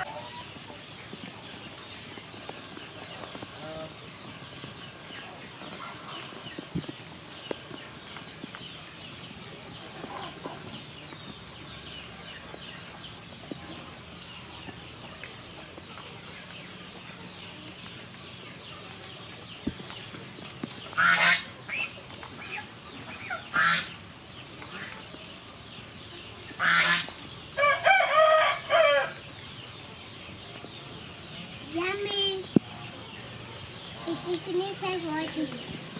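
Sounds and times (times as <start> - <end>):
chickens squawking: 0.0 - 2.2, 2.8 - 6.8, 20.8 - 25.2, 26.3 - 29.8
rooster crowing: 27.6 - 29.2.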